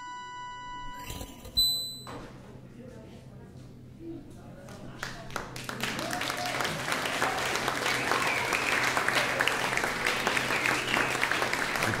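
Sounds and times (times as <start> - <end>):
audience applause: 5.0 - 12.0.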